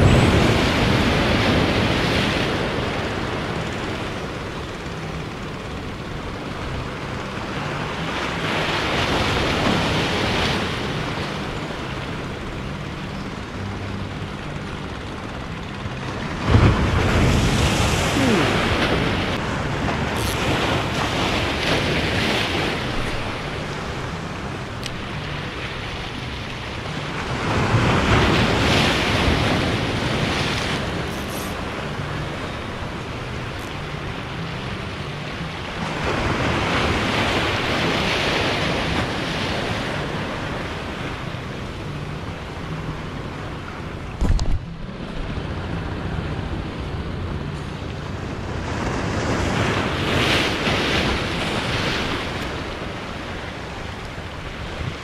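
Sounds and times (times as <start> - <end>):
surf washing over rocks: 0.0 - 4.9, 7.0 - 12.3, 16.3 - 55.0.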